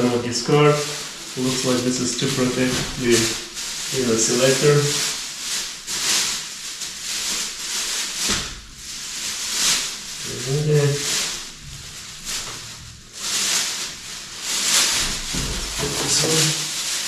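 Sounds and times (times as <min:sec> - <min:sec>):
plastic bag crinkling and rustling: 0:00.0 - 0:17.0.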